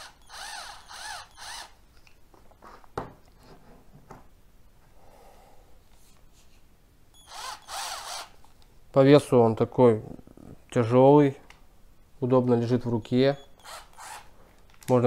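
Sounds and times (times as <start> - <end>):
cordless drill motor whine: 0.0 - 1.8, 7.2 - 8.3, 13.6 - 14.3.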